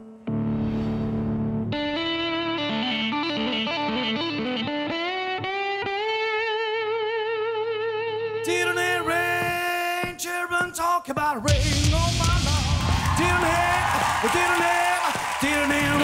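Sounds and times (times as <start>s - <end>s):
slide steel guitar: 1.5s - 8.8s.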